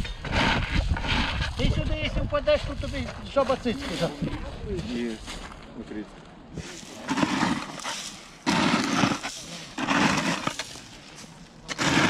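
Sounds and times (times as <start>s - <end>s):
shovel scraping gravel: 6.6s - 12.0s.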